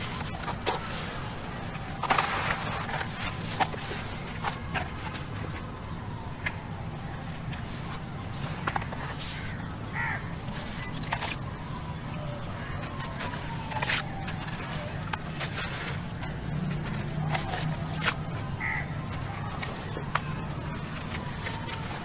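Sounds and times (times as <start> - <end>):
dried cement crunching by hand: 8.5 - 22.0.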